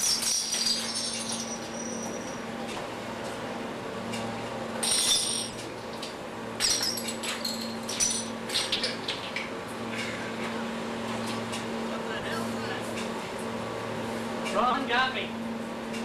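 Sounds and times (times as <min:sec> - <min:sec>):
bottle caps clinking on concrete: 0:00.0 - 0:02.4, 0:04.8 - 0:05.6, 0:06.6 - 0:09.4.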